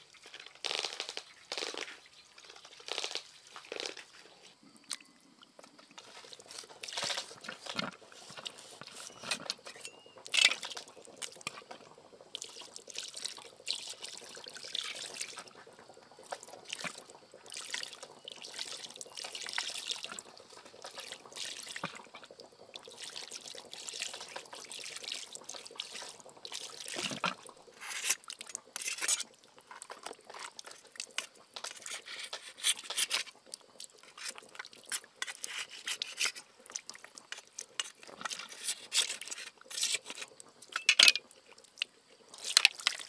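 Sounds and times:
water splashing and trickling: 0:00.0 - 0:43.0.

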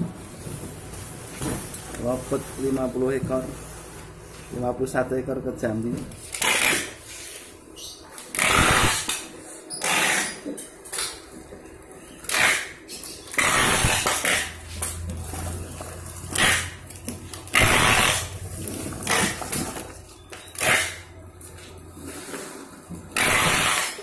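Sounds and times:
packing tape ripping: 0:06.1 - 0:07.0, 0:08.2 - 0:11.1, 0:12.2 - 0:21.1, 0:23.2 - 0:24.0
low steady hum: 0:13.4 - 0:23.2.

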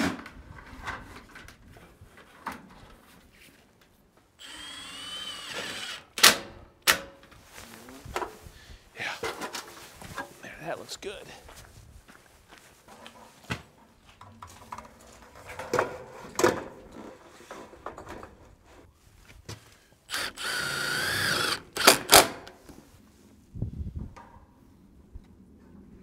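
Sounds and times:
power drill whirring: 0:04.4 - 0:06.4, 0:20.1 - 0:22.4.

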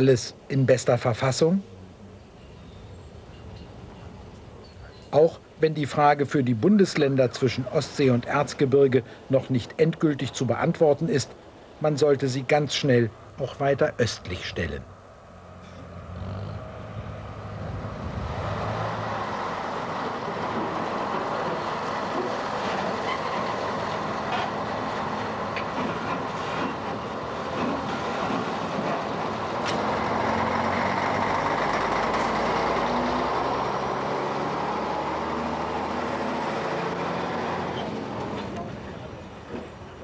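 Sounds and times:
moving vehicle running noise: 0:15.1 - 0:39.9.

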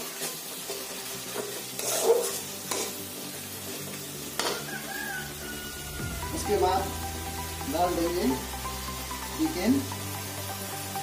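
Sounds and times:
spatula scraping pan: 0:00.0 - 0:04.7
sizzling in oil: 0:00.0 - 0:11.0.

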